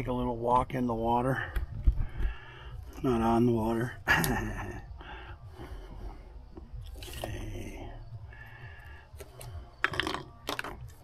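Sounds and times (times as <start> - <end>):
steady low rumble: 1.0 - 7.0
objects shifted on a tabletop: 9.2 - 11.0.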